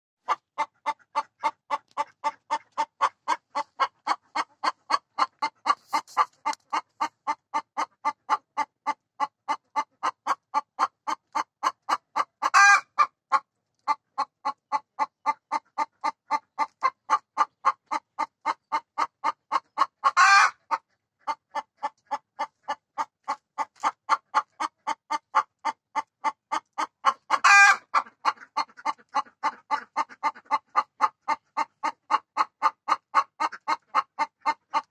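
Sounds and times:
hen clucking: 0.2s - 34.9s.

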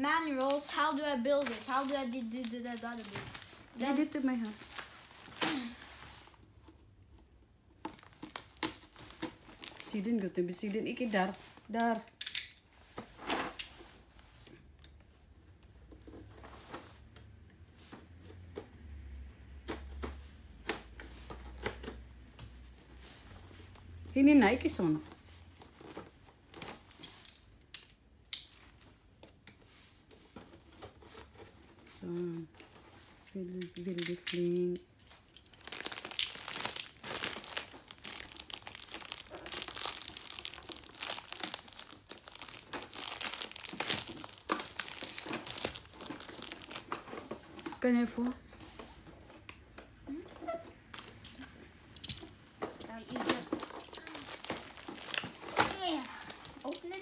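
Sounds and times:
cardboard box crinkling and scraping: 1.3s - 6.4s, 35.7s - 49.3s, 52.8s - 57.0s.

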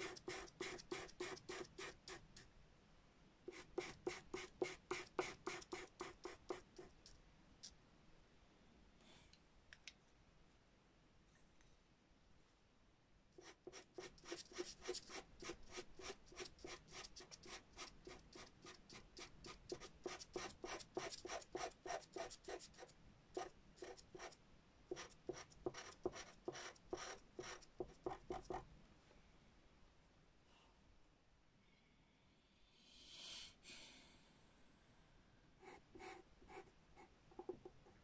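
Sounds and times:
pencil scratching on paper: 0.0s - 2.4s, 3.5s - 7.1s, 13.4s - 28.6s, 35.6s - 38.0s.

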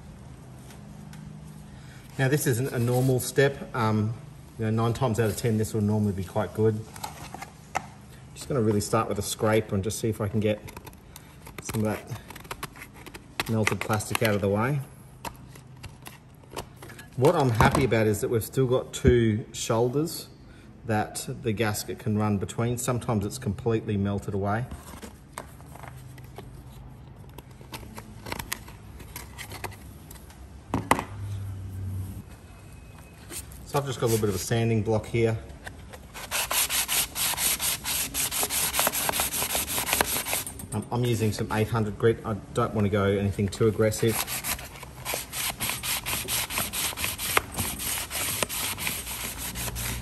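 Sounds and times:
sandpaper scraping on plastic: 33.7s - 34.5s, 36.1s - 40.5s, 43.8s - 50.0s.

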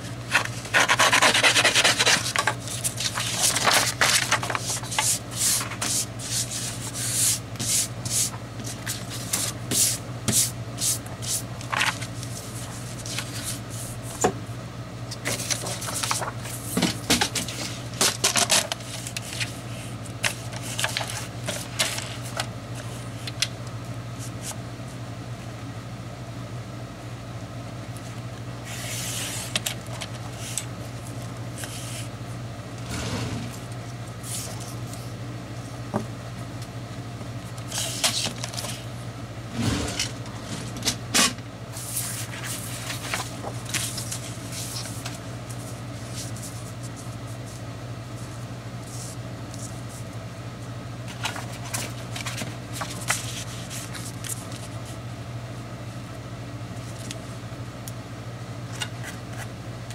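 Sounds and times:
steady low hum: 0.0s - 59.9s
paper rustling and sliding: 0.3s - 14.0s, 15.2s - 23.4s, 28.6s - 30.7s, 31.6s - 32.1s, 32.8s - 35.1s, 37.7s - 38.8s, 41.8s - 47.6s, 51.1s - 55.0s.

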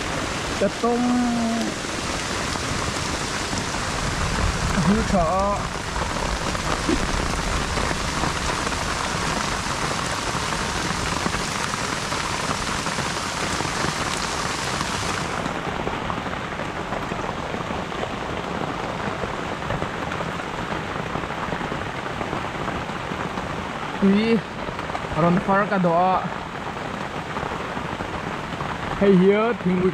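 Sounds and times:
steady water-like hiss: 0.0s - 15.6s.

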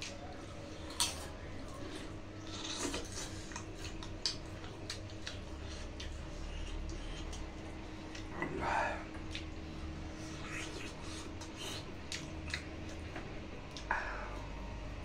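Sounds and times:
chewing and lip smacking: 2.5s - 8.5s, 9.1s - 14.6s.

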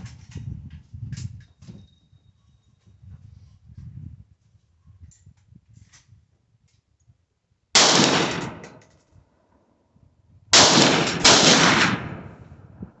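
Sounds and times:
rifle shots: 7.8s - 8.8s, 10.5s - 12.4s.

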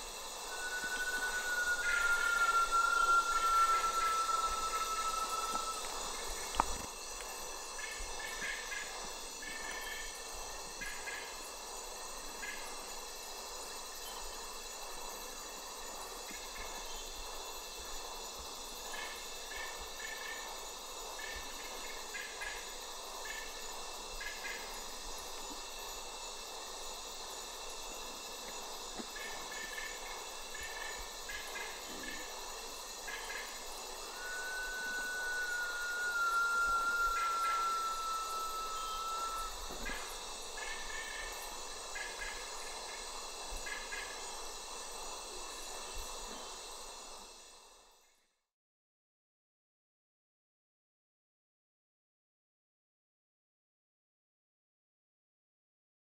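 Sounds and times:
bird long falling whistle: 0.0s - 6.9s, 33.1s - 41.3s
high insect drone: 0.0s - 48.4s
short chirping notes: 34.0s - 39.7s.

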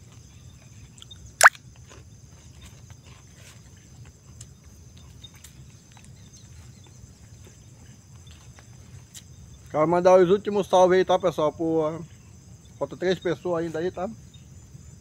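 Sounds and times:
insects droning: 0.0s - 15.0s.

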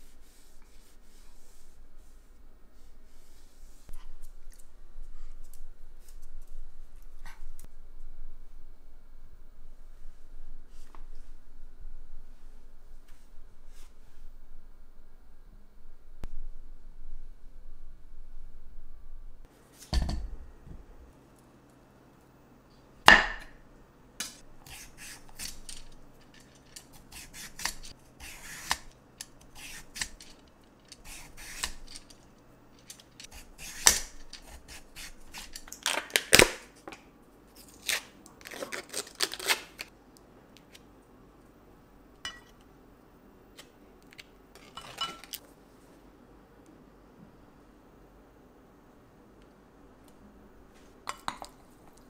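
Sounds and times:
vegetable peeler scraping: 24.6s - 25.9s, 26.6s - 32.2s, 33.2s - 35.7s.

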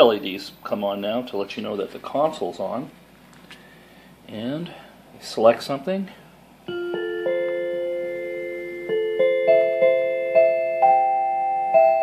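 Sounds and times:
electronic carillon bell melody: 6.7s - 12.0s.

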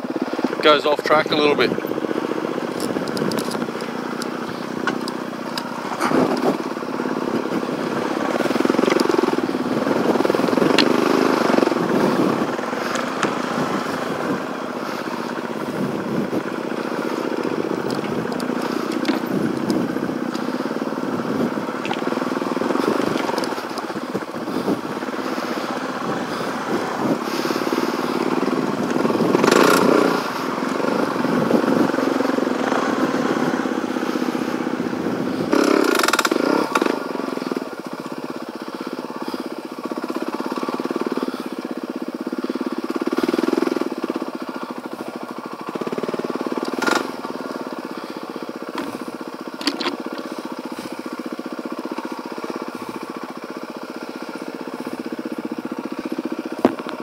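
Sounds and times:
dirt bike engine revving: 0.0s - 57.0s
bike knocks and rattles: 17.4s - 20.5s, 48.7s - 51.0s, 56.5s - 57.0s.

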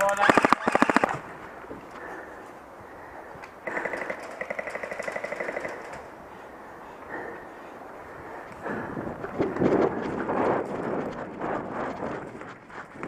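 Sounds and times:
airsoft gun full-auto rattle: 0.0s - 1.2s, 3.6s - 6.1s.

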